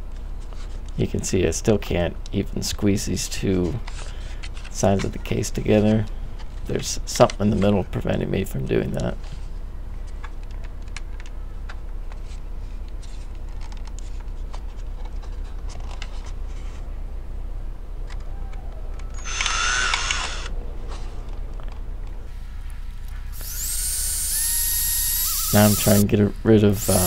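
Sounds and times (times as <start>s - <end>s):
cordless drill whining: 19.2s - 20.5s, 23.3s - 26.0s, 26.8s - 27.0s.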